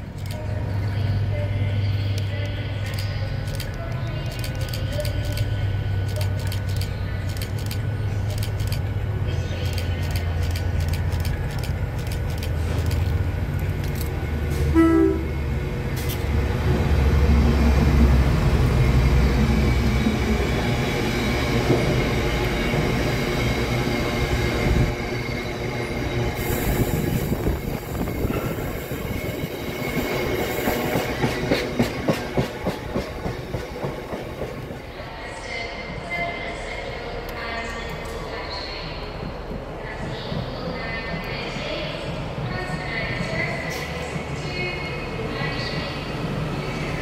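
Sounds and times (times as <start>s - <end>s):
locomotive engine rumble: 0.0s - 35.4s
train horn blast: 14.5s - 15.4s
train wheels clacking over rail joints: 30.4s - 34.8s.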